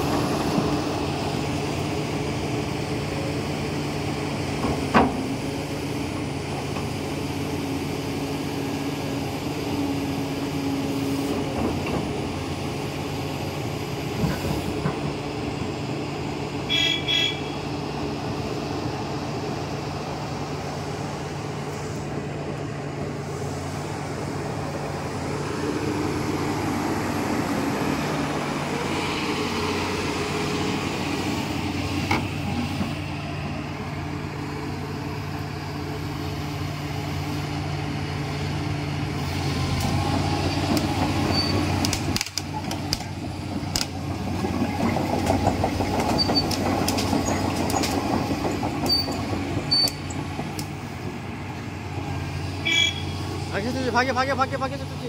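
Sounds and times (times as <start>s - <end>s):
excavator diesel engine running: 0.0s - 55.0s
sharp clicks and knocks: 41.8s - 44.0s.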